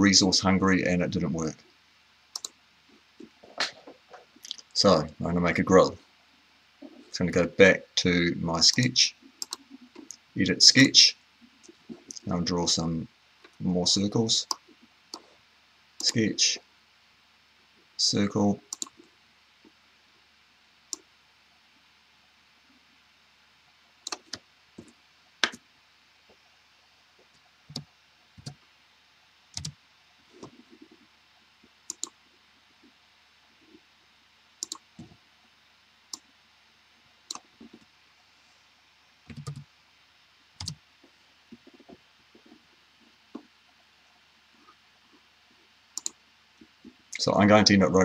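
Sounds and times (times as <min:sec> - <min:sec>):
computer mouse clicks: 0:02.3 - 0:02.6, 0:08.7 - 0:10.2, 0:18.7 - 0:19.1, 0:24.0 - 0:25.6, 0:27.7 - 0:28.6, 0:29.5 - 0:29.8, 0:31.9 - 0:32.2, 0:34.6 - 0:35.2, 0:37.3 - 0:37.9, 0:39.3 - 0:39.7, 0:40.6 - 0:40.8, 0:46.0 - 0:46.2
keyboard keystrokes: 0:39.3 - 0:39.6.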